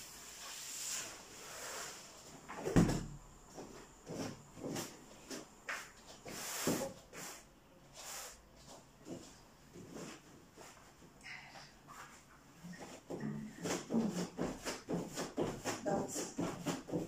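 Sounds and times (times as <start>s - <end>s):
soft thumps and scuffs: 2.3s - 7.1s, 8.6s - 11.2s
mat thudding onto wooden floor: 2.6s - 3.2s.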